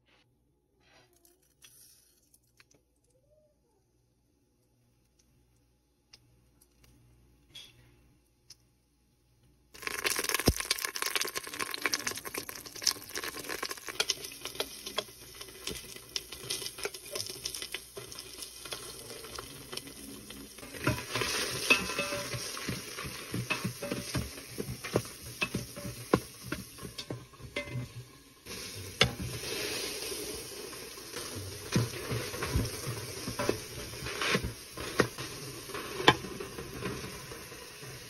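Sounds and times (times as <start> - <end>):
spices sizzling in hot oil: 1.4 - 2.7, 9.7 - 38.0
mustard seeds popping: 9.8 - 19.8
spoon scraping a metal pot: 20.6 - 29.9.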